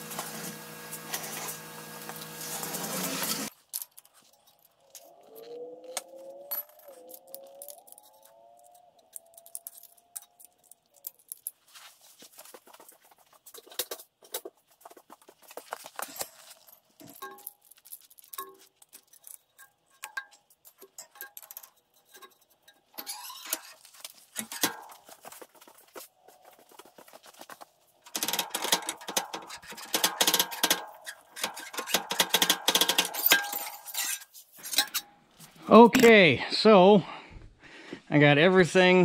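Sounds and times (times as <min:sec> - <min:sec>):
cordless drill running: 0:00.0 - 0:03.5
metal parts clinking: 0:03.4 - 0:11.8, 0:15.9 - 0:25.3, 0:28.0 - 0:35.1
faint rising whine: 0:04.8 - 0:10.0.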